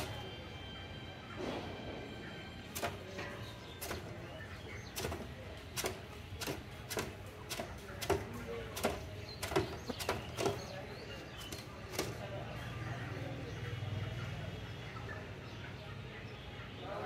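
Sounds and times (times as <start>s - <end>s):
wings beating against metal: 0.0s - 0.5s, 1.3s - 12.6s.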